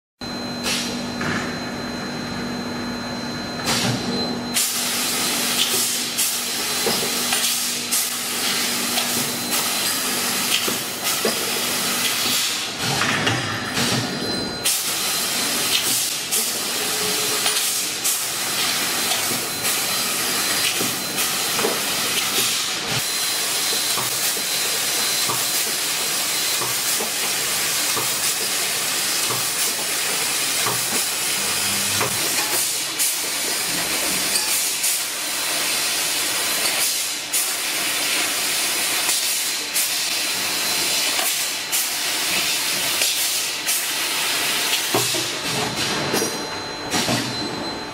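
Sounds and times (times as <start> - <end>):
laser cutter gas hiss: 4.6 - 12.7.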